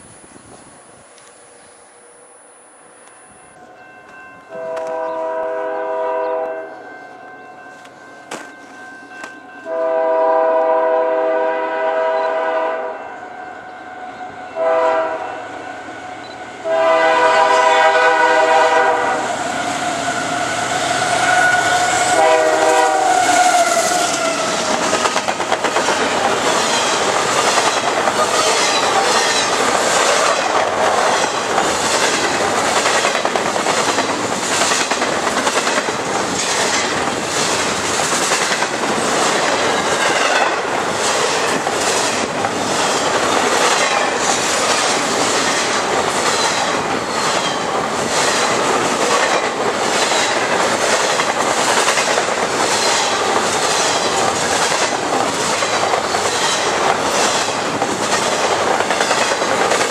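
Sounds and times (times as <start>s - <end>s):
passing train rushing: 0.0s - 59.9s
locomotive horn blasts: 4.5s - 24.6s
train wheels clattering: 21.1s - 59.9s.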